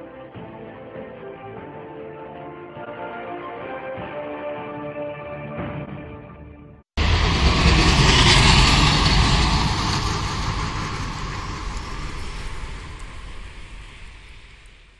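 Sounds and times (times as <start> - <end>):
low rumble of traffic: 7.0 - 14.9.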